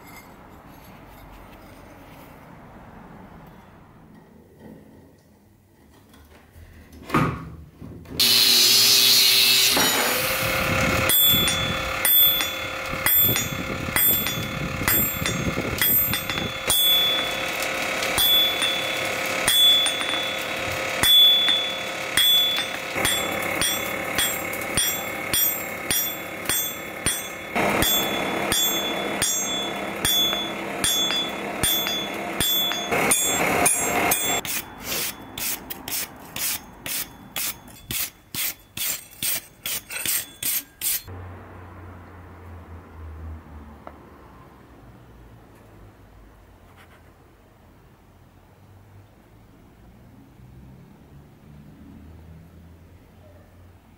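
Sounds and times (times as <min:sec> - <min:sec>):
hammer striking steel on anvil: 0:09.6 - 0:41.1.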